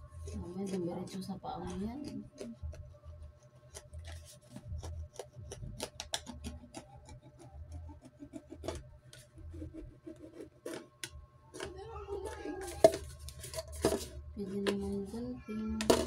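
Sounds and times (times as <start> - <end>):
knife scraping plastic bottle: 3.4 - 11.0.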